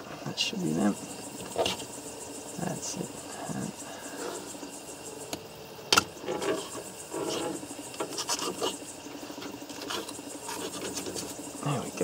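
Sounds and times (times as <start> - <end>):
knife scraping through fish: 6.5 - 8.8, 9.7 - 11.3.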